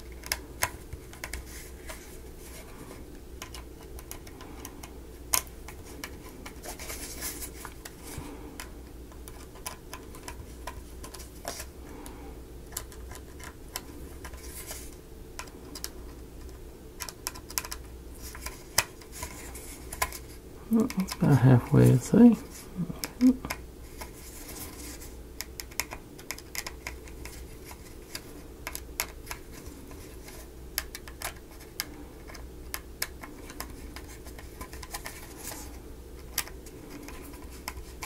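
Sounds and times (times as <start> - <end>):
steady low hum: 0.0 - 38.0.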